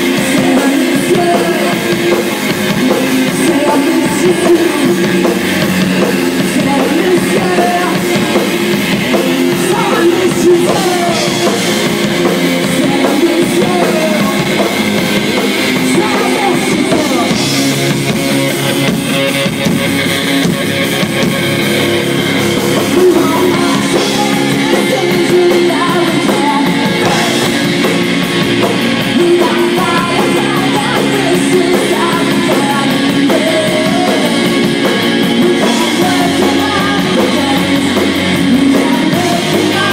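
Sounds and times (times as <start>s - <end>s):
man singing into a microphone: 0.0s - 11.6s, 12.6s - 14.8s, 15.8s - 17.6s, 22.9s - 27.7s, 29.0s - 39.9s
live rock band playing: 0.0s - 39.9s.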